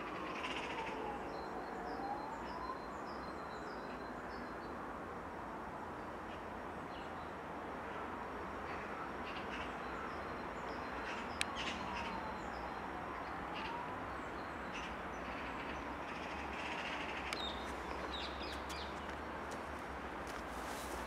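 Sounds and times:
distant traffic rumble: 5.6s - 21.0s.

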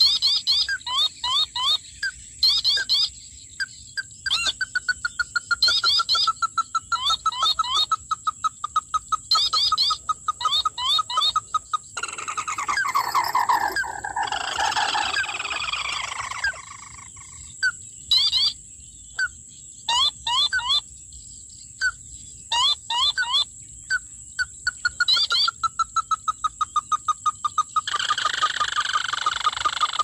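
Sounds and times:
bird descending trill: 12.0s - 16.6s.

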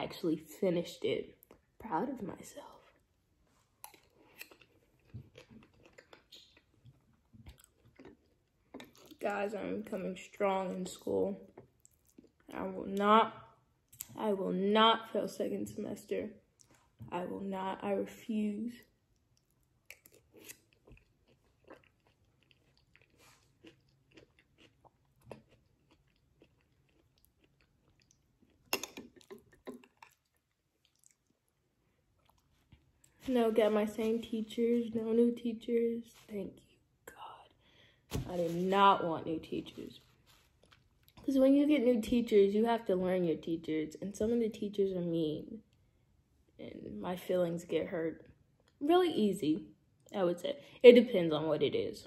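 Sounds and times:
person chewing: 3.7s - 9.3s, 19.1s - 33.3s, 40.0s - 41.3s
wet mouth clicks: 28.0s - 31.2s.

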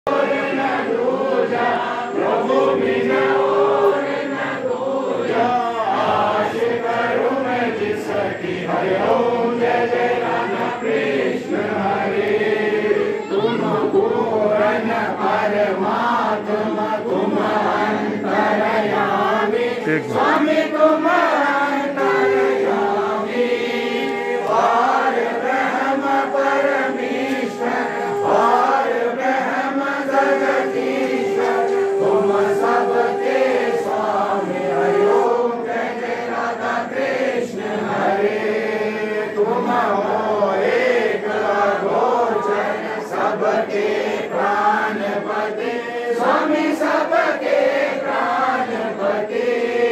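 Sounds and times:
crowd singing in chorus: 0.0s - 49.9s
steady held tone: 16.1s - 37.5s.

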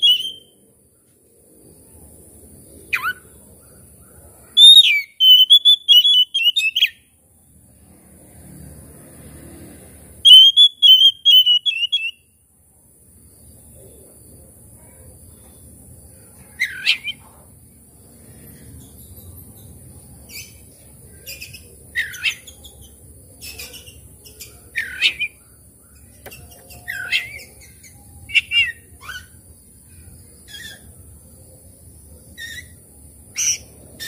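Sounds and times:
bird chirps: 0.0s - 0.6s, 2.8s - 7.1s, 10.2s - 12.4s, 14.8s - 17.4s, 18.1s - 34.0s
bird whistling: 0.0s - 0.6s, 2.9s - 3.2s, 4.6s - 7.0s, 10.2s - 12.3s, 16.6s - 17.2s, 21.3s - 22.6s, 23.4s - 25.4s, 26.3s - 29.4s.

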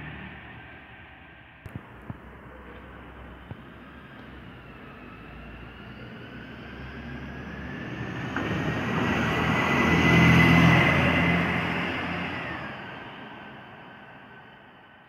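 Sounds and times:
high whine: 0.0s - 7.3s
bus driving past: 0.0s - 15.0s.

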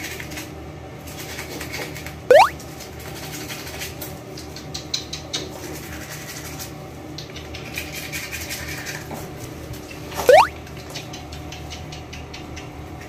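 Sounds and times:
upward sweeping squeak: 10.3s - 10.5s.

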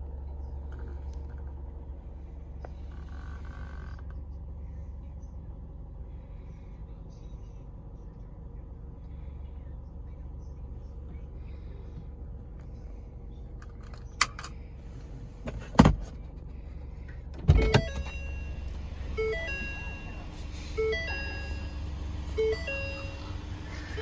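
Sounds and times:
low car interior hum: 0.0s - 24.0s
electronic warning chimes: 17.5s - 24.0s.

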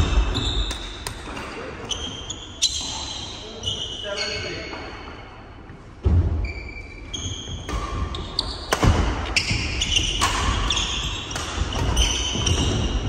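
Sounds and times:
shoes squeaking on wooden floor: 6.4s - 13.0s
racket hitting shuttlecock: 7.7s - 13.0s.

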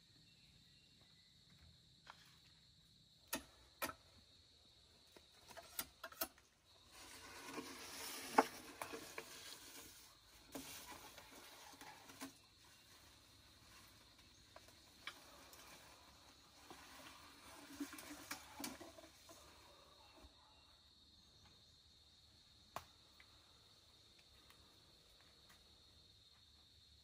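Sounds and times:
bamboo pole dragging through dry leaves: 6.8s - 19.7s.

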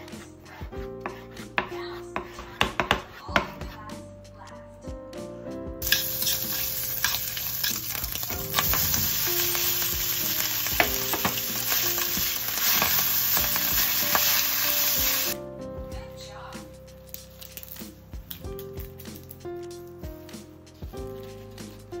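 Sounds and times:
food sizzling in a frying pan: 5.8s - 15.4s.

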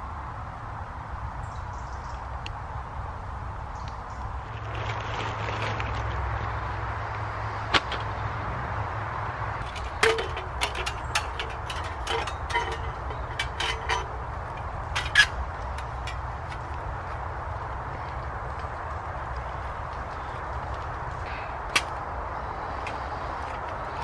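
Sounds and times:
metal stove clicks and clinks: 9.6s - 16.2s.

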